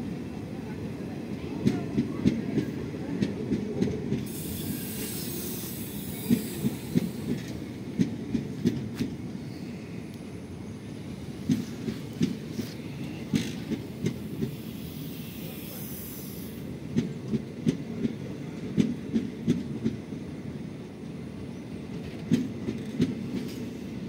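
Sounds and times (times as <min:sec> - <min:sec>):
train low rumble: 0:00.0 - 0:24.0
train wheels clacking over rail joints: 0:01.6 - 0:09.2, 0:11.4 - 0:15.7, 0:21.9 - 0:23.8.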